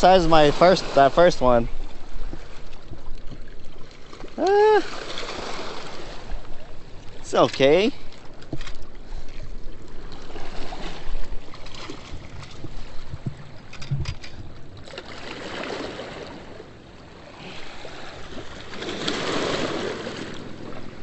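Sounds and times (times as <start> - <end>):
rushing water: 0.0 - 21.0
wind noise: 8.5 - 14.9.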